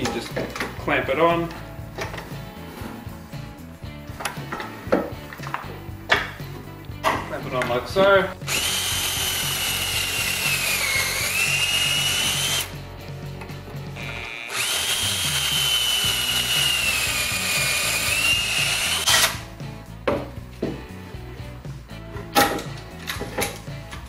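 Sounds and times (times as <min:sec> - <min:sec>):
drill motor whining: 0:08.4 - 0:12.7, 0:14.0 - 0:19.4.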